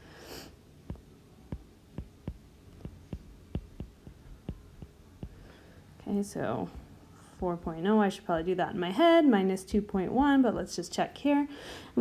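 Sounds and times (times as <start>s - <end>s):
stylus tapping on glass screen: 0.9s - 5.4s.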